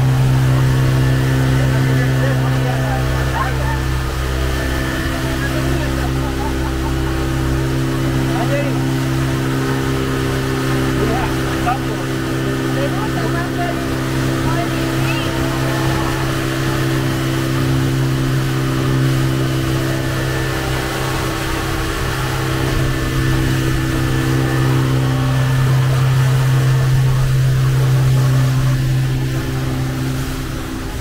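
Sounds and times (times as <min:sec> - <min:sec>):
hiss of churning wake: 0:00.0 - 0:31.0
outboard motor drone: 0:00.0 - 0:31.0
wind: 0:00.0 - 0:31.0.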